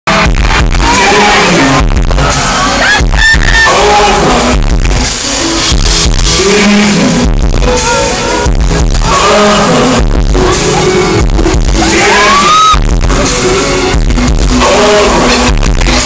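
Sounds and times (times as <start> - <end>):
amplified live pop music with singer: 0.1 - 16.0.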